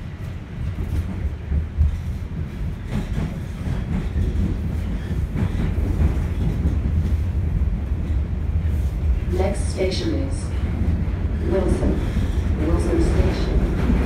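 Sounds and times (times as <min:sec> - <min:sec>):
subway train rumble: 0:00.0 - 0:14.0
faint clicks from rails: 0:00.2 - 0:08.3.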